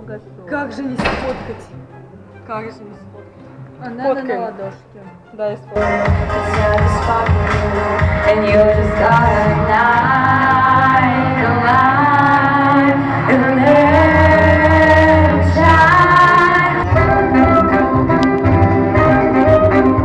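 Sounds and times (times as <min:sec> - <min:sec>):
instrumental backing: 0:00.0 - 0:20.0
woman singing long notes: 0:05.7 - 0:20.0.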